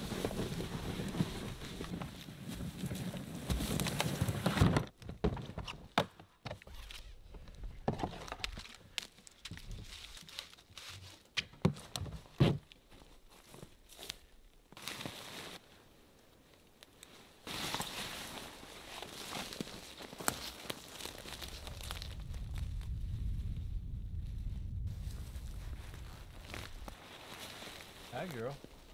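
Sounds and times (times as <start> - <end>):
rope and canvas rustling: 0.0 - 4.8, 12.3 - 15.6, 17.0 - 22.6, 24.9 - 28.9
footsteps in snow: 12.9 - 15.6, 17.2 - 22.4, 24.9 - 28.9.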